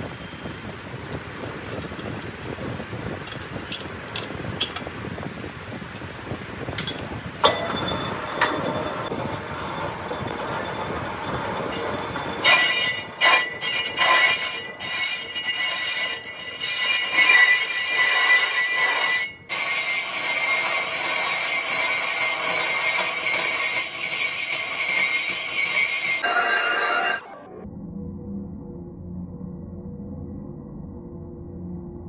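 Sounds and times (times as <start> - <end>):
lathe tool screeching on metal: 7.8 - 27.3.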